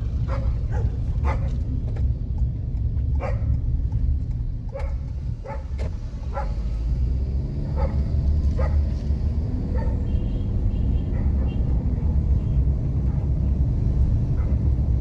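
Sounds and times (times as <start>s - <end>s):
car driving slowly: 0.0s - 15.0s
dog barking: 0.3s - 1.6s, 3.2s - 3.5s, 4.7s - 5.7s, 6.3s - 6.6s, 7.6s - 9.0s, 9.7s - 10.3s, 11.0s - 11.9s, 13.0s - 13.4s, 14.3s - 14.7s.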